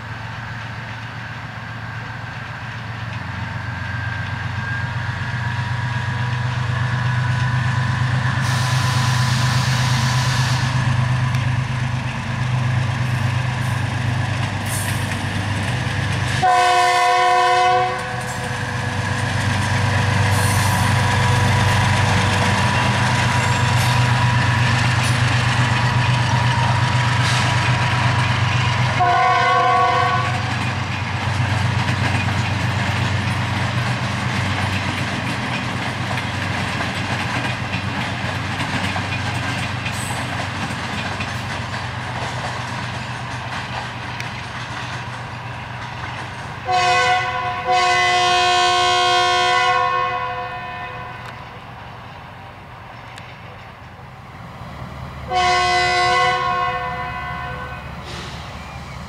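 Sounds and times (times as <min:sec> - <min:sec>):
train rumbling on rails: 0:00.0 - 0:59.0
locomotive horn blast: 0:16.4 - 0:18.5, 0:28.9 - 0:30.5, 0:46.6 - 0:51.6, 0:55.3 - 0:58.4.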